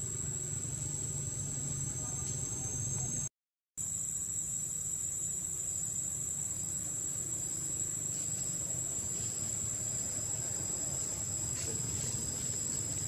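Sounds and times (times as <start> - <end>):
high-pitched insect drone: 0.0 - 13.0.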